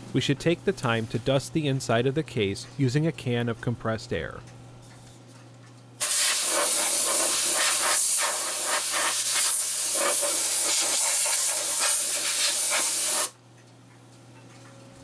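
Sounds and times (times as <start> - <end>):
compressed air hissing: 6.0 - 13.4.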